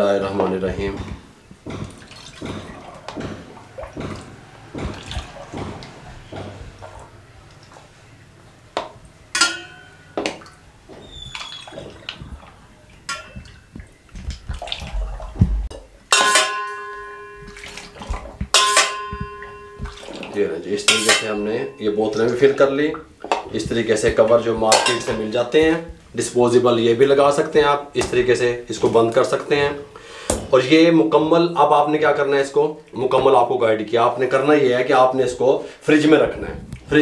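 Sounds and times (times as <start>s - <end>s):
ladle knocking against metal pot: 8.8s - 10.4s, 15.6s - 22.5s, 23.2s - 26.0s
metal strikes ringing: 9.3s - 10.2s, 16.1s - 22.5s, 24.6s - 25.8s.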